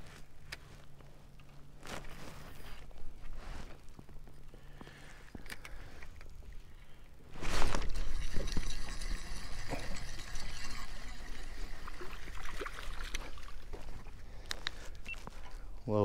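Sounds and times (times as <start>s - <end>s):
water splashing and sloshing: 7.4s - 14.3s.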